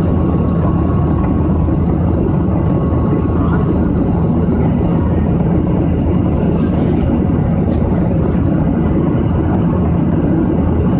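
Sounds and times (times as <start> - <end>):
jet engine noise in cabin: 0.0 - 10.9.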